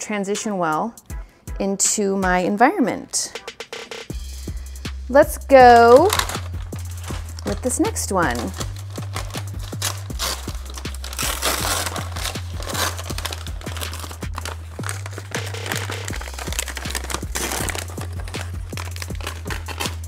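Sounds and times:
background music with bass: 0:01.0 - 0:02.4, 0:03.4 - 0:20.0
packing paper crinkling: 0:05.8 - 0:20.0.

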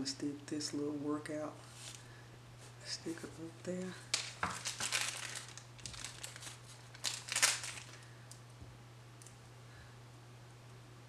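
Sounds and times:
plastic bag crinkling: 0:03.7 - 0:08.1.

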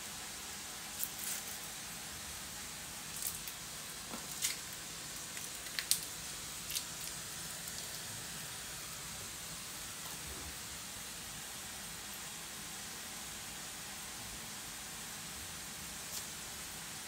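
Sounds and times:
steady background hiss: 0:00.0 - 0:17.0
pastry sheets crinkling: 0:03.1 - 0:08.0.

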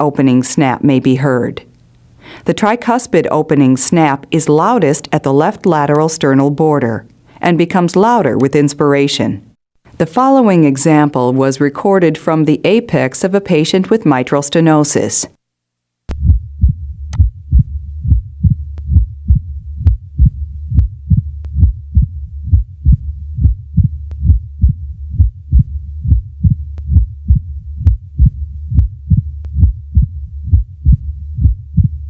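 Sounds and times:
heartbeat clicks: 0:16.1 - 0:32.0
low rumbling heart murmur: 0:16.1 - 0:32.0.

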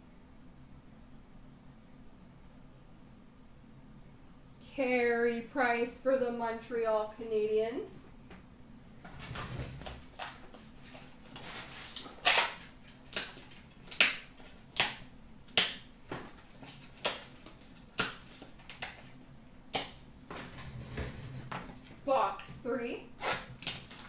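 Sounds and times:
trading cards snapping: 0:12.0 - 0:19.1, 0:19.7 - 0:20.0.

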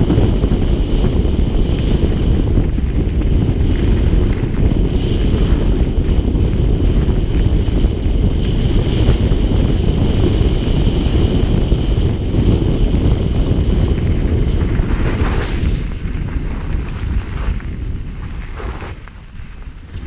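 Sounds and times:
bike tyres rumbling on dirt: 0:00.0 - 0:20.0
wind buffeting microphone: 0:00.0 - 0:20.0.

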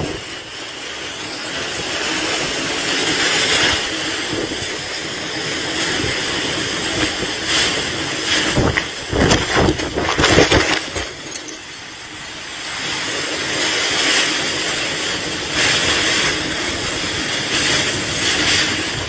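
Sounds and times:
strong wind gusts: 0:01.0 - 0:11.5.

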